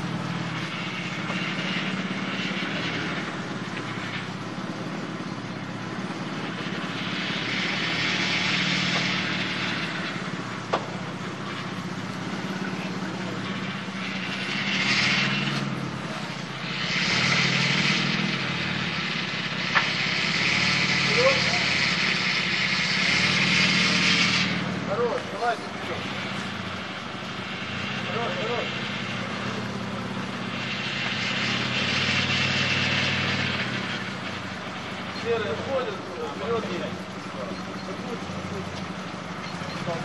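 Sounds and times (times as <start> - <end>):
car engine idling: 0.0 - 40.0
hiss: 6.4 - 10.5, 12.3 - 24.7, 25.9 - 35.1.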